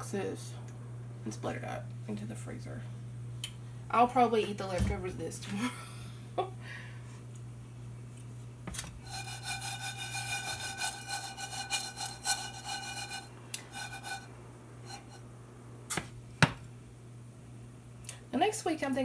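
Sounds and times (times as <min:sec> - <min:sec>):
skillet scraping on cooktop: 0:08.7 - 0:15.2.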